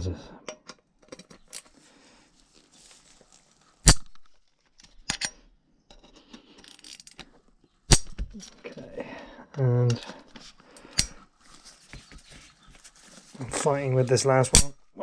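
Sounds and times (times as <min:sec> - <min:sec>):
scraping and handling noise: 0:00.5 - 0:09.0, 0:09.8 - 0:14.7
metallic cracks of bolts loosening: 0:03.8 - 0:05.4.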